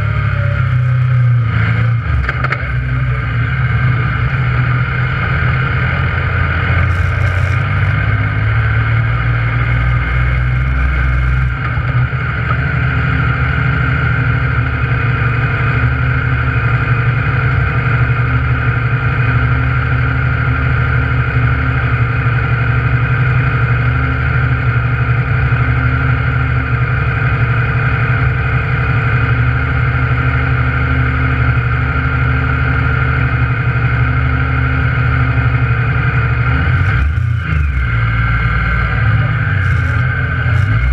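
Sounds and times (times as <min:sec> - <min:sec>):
vehicle engine running: 0:00.0 - 0:40.9.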